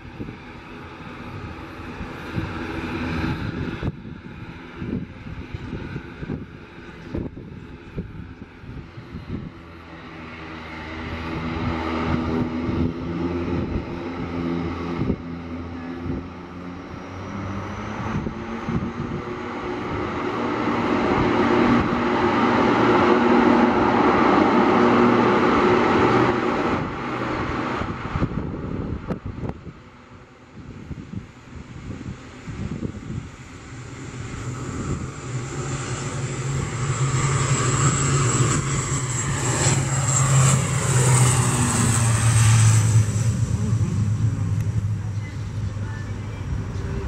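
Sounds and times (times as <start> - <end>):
engine hum: 0.0 - 47.0
propeller drone: 0.0 - 47.0.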